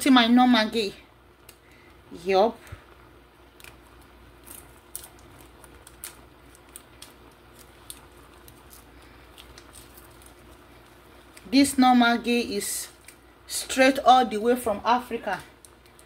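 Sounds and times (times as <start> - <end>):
foil wrapper crinkling: 3.5 - 11.6, 12.6 - 13.3, 15.2 - 16.0.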